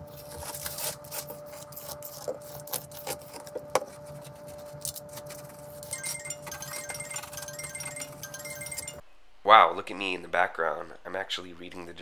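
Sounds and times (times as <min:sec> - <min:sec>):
oscillating multi-tool buzzing: 0:05.8 - 0:09.0.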